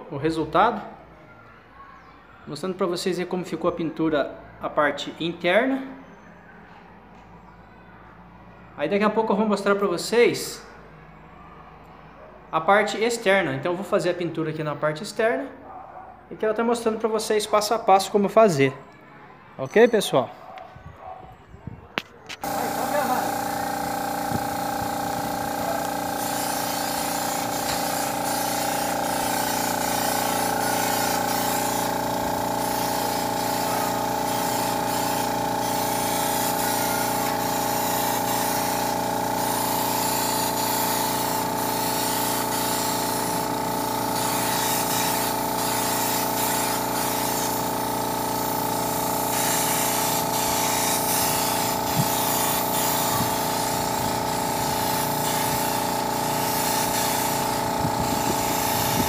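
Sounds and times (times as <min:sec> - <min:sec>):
air compressor humming: 0:22.4 - 0:59.0
spray gun hissing: 0:22.4 - 0:59.0.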